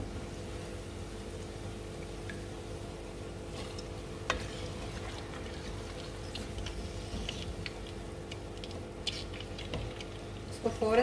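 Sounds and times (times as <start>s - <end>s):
food frying in oil: 0.4s - 11.0s
oil crackling: 4.3s - 11.0s.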